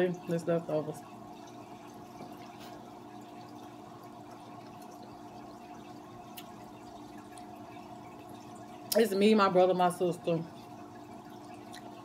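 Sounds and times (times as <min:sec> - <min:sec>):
aquarium filter hum: 0:00.0 - 0:12.0
water trickling: 0:00.0 - 0:12.0
faint chewing clicks: 0:11.6 - 0:12.0.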